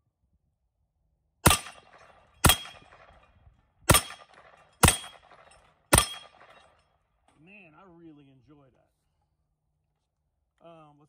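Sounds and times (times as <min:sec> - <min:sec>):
gunshots with echo: 0:01.4 - 0:03.2, 0:03.9 - 0:06.7.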